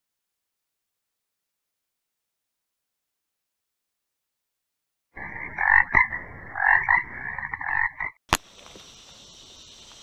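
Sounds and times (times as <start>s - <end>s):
raspy croaking sound effect: 5.2s - 8.2s
sharp click: 8.3s - 8.8s
faint outdoor hiss: 8.3s - 10.0s.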